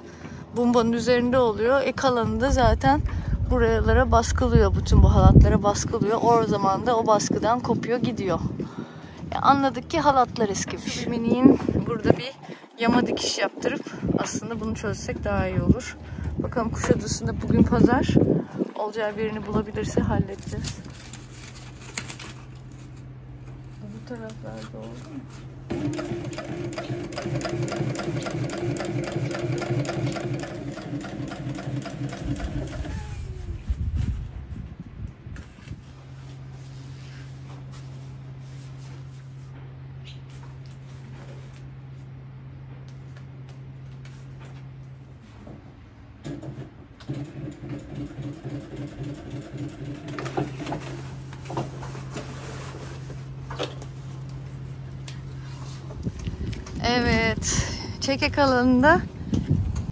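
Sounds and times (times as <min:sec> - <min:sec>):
sewing machine stitching: 0:25.7 - 0:33.1, 0:46.3 - 0:51.0.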